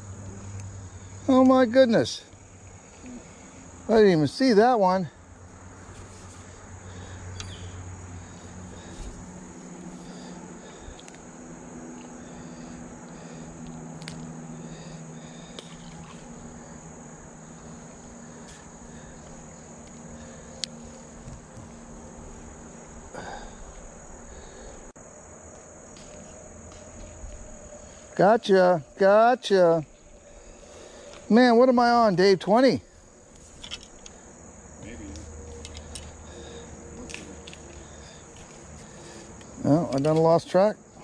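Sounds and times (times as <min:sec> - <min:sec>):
insect chorus droning: 0:00.0 - 0:41.0
man speaking: 0:01.3 - 0:02.3, 0:03.9 - 0:05.1, 0:31.3 - 0:32.8, 0:39.6 - 0:40.8.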